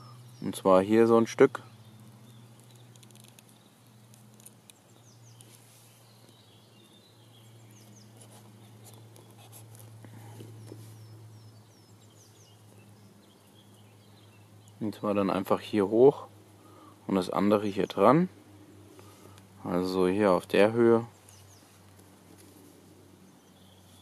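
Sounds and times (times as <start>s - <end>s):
faint bird chirps: 0.0s - 15.2s, 23.2s - 24.0s
low steady hum: 0.0s - 24.0s.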